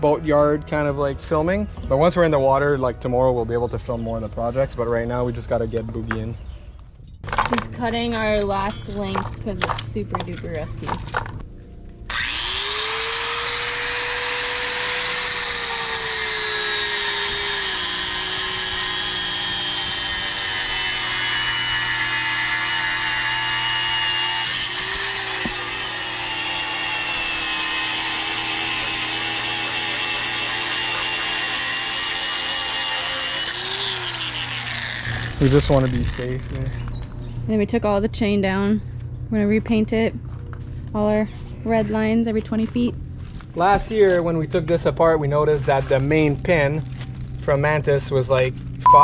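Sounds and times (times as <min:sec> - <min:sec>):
angle grinder cutting steel: 0:12.1 - 0:36.4.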